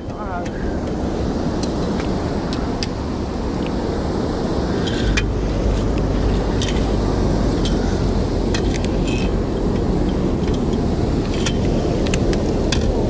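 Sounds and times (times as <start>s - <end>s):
boat engine rumble: 0.0s - 13.0s
light clicks and clinks: 4.8s - 7.9s.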